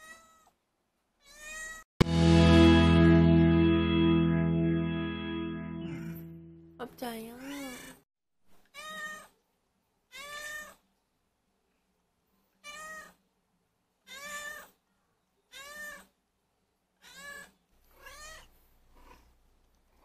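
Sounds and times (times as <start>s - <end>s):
cat meowing: 1.2s - 1.8s, 8.7s - 9.3s, 10.1s - 10.8s, 12.6s - 13.2s, 14.1s - 14.8s, 15.5s - 16.1s, 17.0s - 18.5s.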